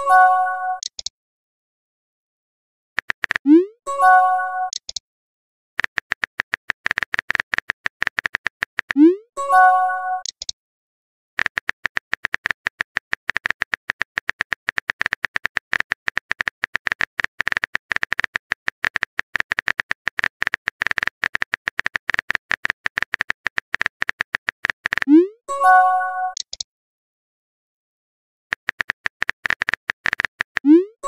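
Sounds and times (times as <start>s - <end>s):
phone keyboard typing clicks: 0.8s - 1.1s, 3.0s - 3.6s, 4.6s - 5.0s, 5.8s - 9.1s, 10.2s - 10.6s, 11.4s - 25.2s, 26.3s - 26.6s, 28.5s - 30.9s.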